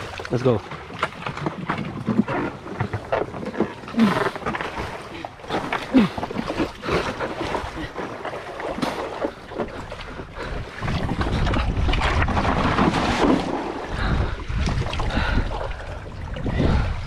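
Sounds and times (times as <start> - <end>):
water splashing around kayak: 0.0 - 17.0
wind buffeting microphone: 9.7 - 17.0.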